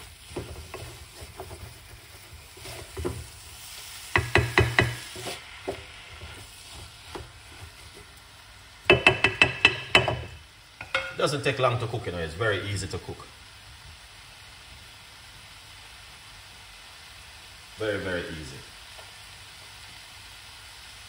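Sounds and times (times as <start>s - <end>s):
wooden spoon stirring in pot: 0.0s - 11.3s
low steady sizzle: 0.0s - 21.0s
spoon knocking against pot: 4.1s - 5.0s, 8.9s - 11.2s.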